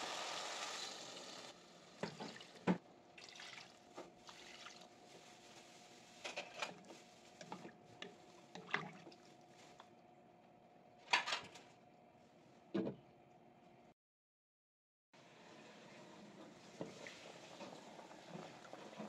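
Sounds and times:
meat sizzling in a pot: 0.0s - 1.8s
water pouring into a pot: 0.0s - 2.4s, 3.2s - 4.8s.

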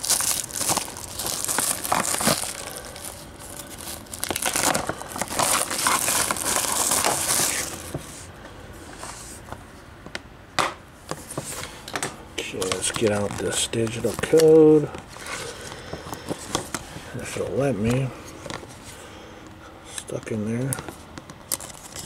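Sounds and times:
plastic wrap crinkling: 0.0s - 8.2s, 12.4s - 18.0s.

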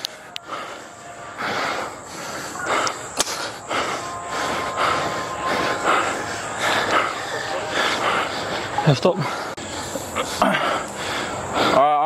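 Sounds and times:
heavy rhythmic breathing: 0.0s - 12.0s.

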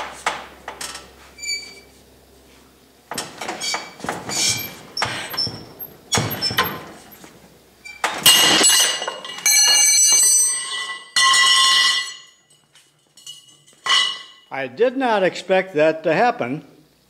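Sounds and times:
steel pieces clattering and ringing: 8.2s - 14.5s.

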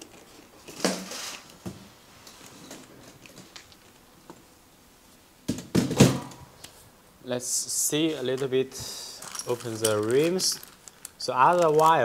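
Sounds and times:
plastic packaging rustling: 0.0s - 1.6s, 8.0s - 12.0s.

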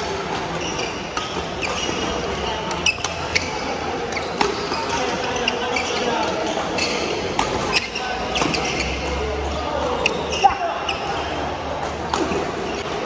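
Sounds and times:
chatter in hall: 0.0s - 13.0s
shoes squeaking on court floor: 0.0s - 13.0s
rackets striking shuttlecock: 0.2s - 5.3s, 6.2s - 11.2s.

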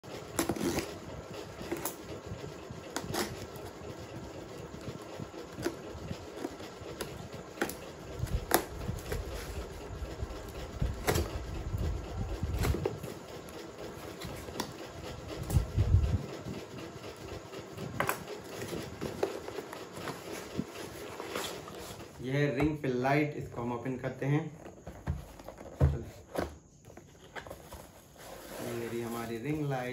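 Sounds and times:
packing tape slit and scraped: 0.2s - 2.0s, 2.9s - 3.5s.

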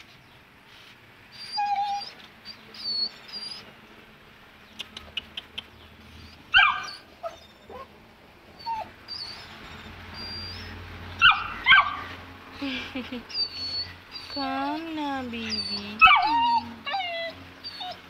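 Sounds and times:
puppy whimpering: 1.3s - 3.7s, 6.2s - 8.0s, 8.6s - 12.0s, 12.6s - 18.0s
sharp clicks: 4.7s - 5.8s.

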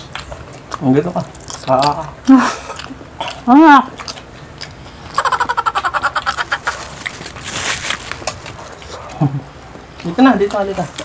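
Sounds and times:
person cackling laugh: 5.2s - 6.8s.

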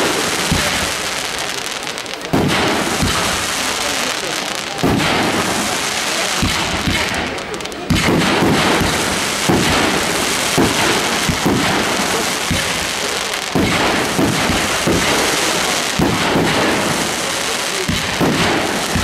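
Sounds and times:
fireworks bangs: 0.0s - 19.0s
fireworks crackling hiss: 0.0s - 19.0s.

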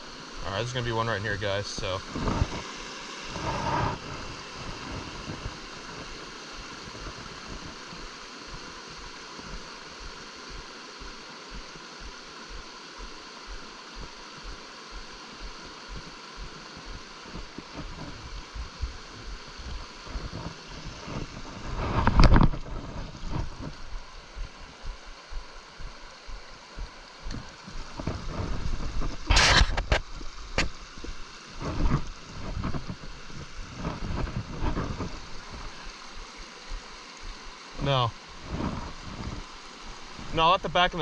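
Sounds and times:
flowing brook: 0.0s - 41.0s
low bumps: 13.5s - 33.0s.

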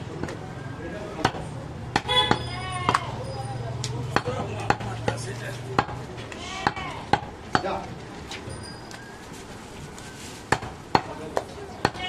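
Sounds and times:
faint market voices: 0.0s - 12.0s
knife chopping ribs on wood block: 4.1s - 6.0s.

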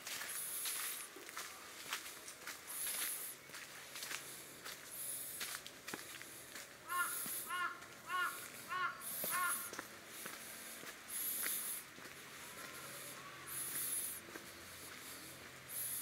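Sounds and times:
footsteps on dirt path: 0.0s - 16.0s
bird cawing: 6.8s - 9.9s.

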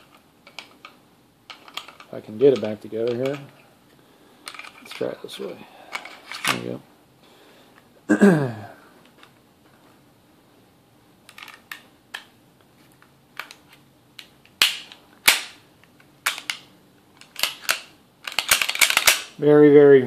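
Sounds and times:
pistol slide clacking: 14.2s - 15.6s, 16.2s - 19.4s.

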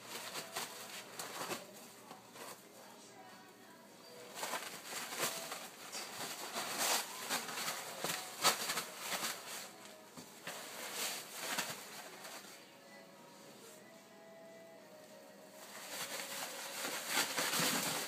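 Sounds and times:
paper towels rustling and tearing: 0.0s - 2.6s, 4.3s - 12.6s, 15.6s - 18.0s.

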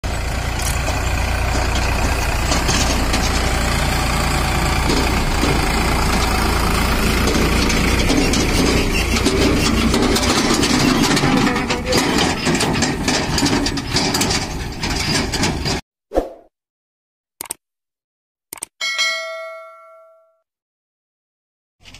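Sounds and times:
tractor diesel engine running: 0.0s - 15.8s.

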